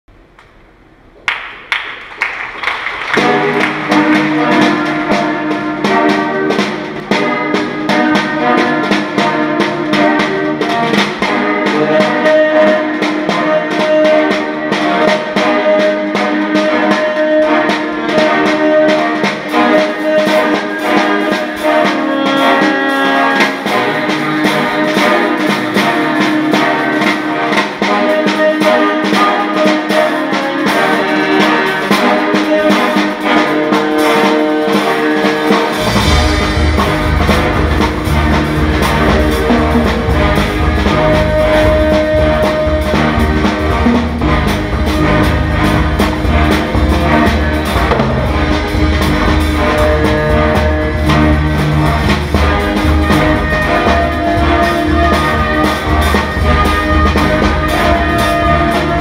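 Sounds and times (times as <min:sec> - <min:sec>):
instrumental ensemble music: 0:00.1 - 0:59.0
drums and percussion: 0:00.2 - 0:59.0
low bass line: 0:35.8 - 0:59.0.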